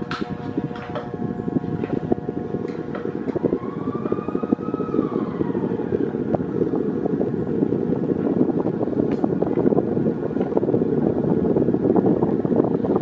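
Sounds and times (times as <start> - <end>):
fan airflow rushing: 0.0 - 13.0
faint tone rising and falling: 3.4 - 6.6.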